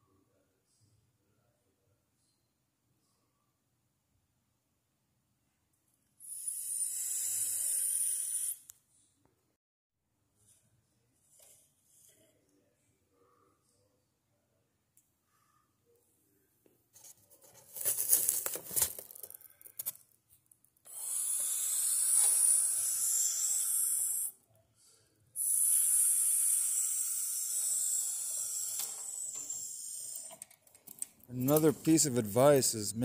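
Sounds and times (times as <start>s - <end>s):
crackling handling noise: 17.0s - 20.8s, 30.4s - 32.5s.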